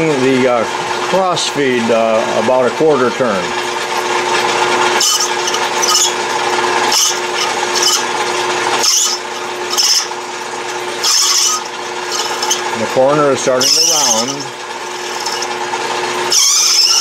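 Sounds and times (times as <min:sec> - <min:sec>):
lathe humming: 0:00.0 - 0:17.0
cutting tool scraping hiss: 0:04.9 - 0:06.2, 0:06.8 - 0:15.6, 0:16.3 - 0:17.0.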